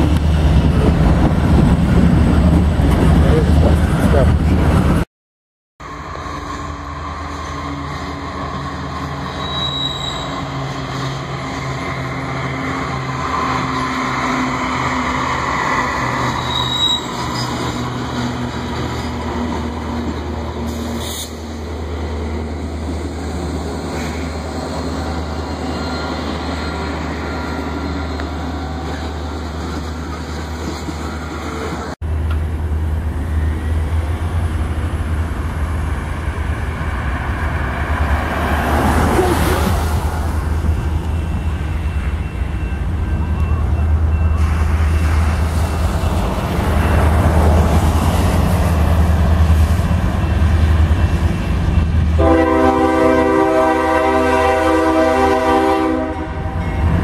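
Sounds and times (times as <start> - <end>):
train wheels rumbling on rail: 0.0 - 5.0, 5.8 - 57.0
diesel locomotive engines droning: 5.8 - 57.0.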